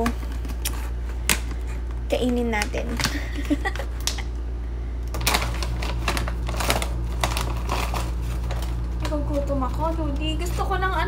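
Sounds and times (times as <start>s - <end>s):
plastic snack bag crinkling: 5.2s - 11.0s.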